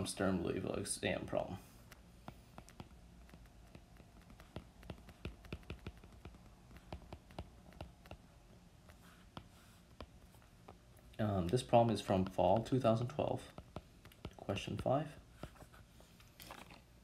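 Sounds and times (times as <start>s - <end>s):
low steady hum: 0.0s - 17.0s
stylus tapping on glass screen: 2.3s - 8.2s.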